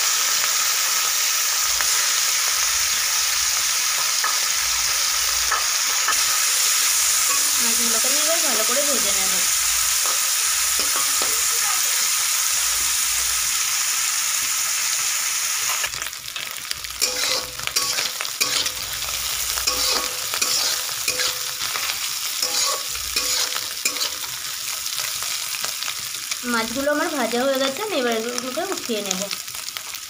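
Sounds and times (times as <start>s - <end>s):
prawns sizzling in hot oil: 0.0s - 30.0s
metal spatula scraping a pan: 16.4s - 24.4s.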